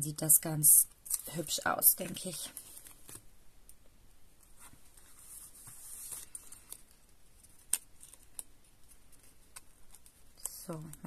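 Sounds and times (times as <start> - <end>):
paper rustling: 4.4 - 11.0.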